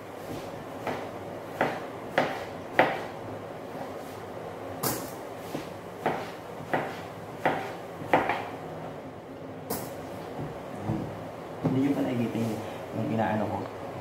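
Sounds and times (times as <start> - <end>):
knife chopping on cutting board: 0.3 - 3.1, 4.8 - 8.5.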